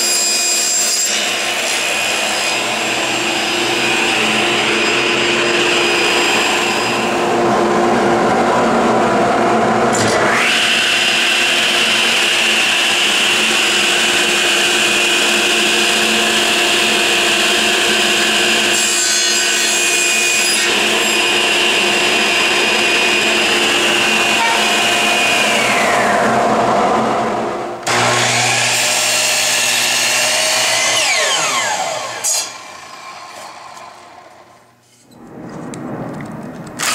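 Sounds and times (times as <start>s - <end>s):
power saw cutting wood: 0.0s - 7.6s, 9.9s - 27.2s, 27.8s - 34.6s
saw winding down: 10.0s - 18.7s, 19.7s - 26.7s, 27.8s - 34.6s.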